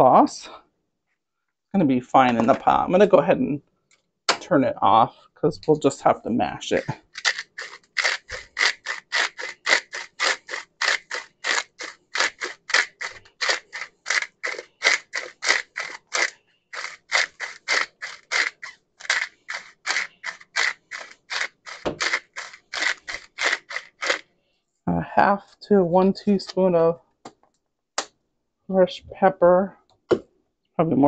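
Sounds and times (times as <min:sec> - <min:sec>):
pepper mill grinding: 0:06.5 - 0:24.2.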